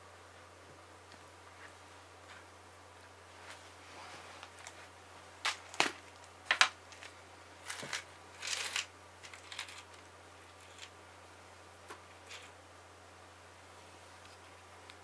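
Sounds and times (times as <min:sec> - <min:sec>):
crackers rattling in tub: 0:05.4 - 0:10.9.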